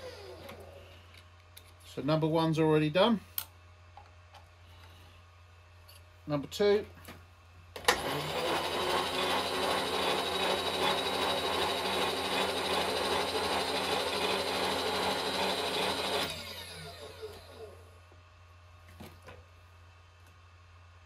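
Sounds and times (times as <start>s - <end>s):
power feed motor whining: 0.0s - 1.0s, 7.8s - 17.9s.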